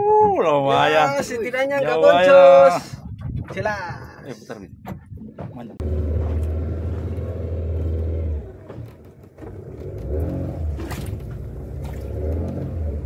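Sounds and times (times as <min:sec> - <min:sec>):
boat engine running: 0:03.0 - 0:13.0.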